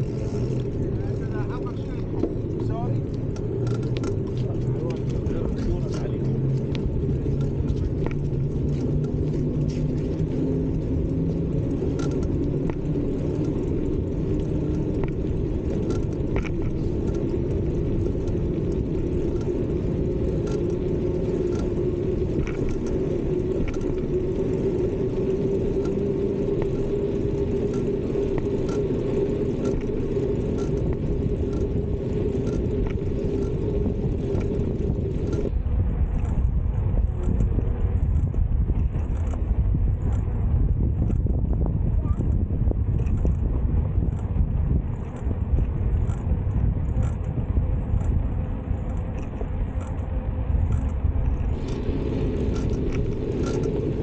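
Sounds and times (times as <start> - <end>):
faint regular ticks: 0.0 - 41.4, 42.0 - 54.0
bicycle tyres rumbling: 0.0 - 54.0
low hum rising in pitch: 0.0 - 54.0.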